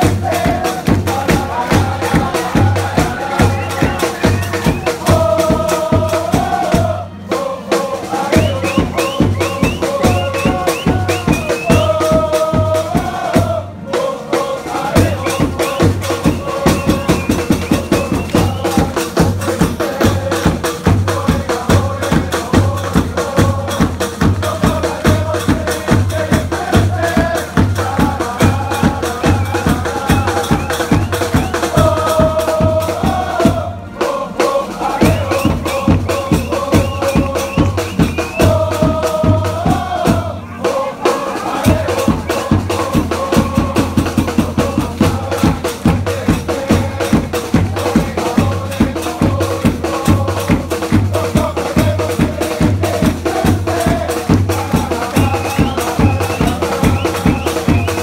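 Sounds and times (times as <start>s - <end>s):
bass drum beat: 0.0s - 7.0s, 8.2s - 13.6s, 14.8s - 33.8s, 34.8s - 58.0s
crowd singing a chant: 0.0s - 58.0s.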